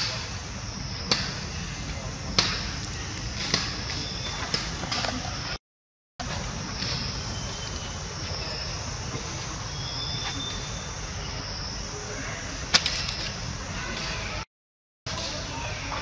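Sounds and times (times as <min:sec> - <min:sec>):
high insect drone: 0:00.0 - 0:04.3, 0:06.2 - 0:14.4.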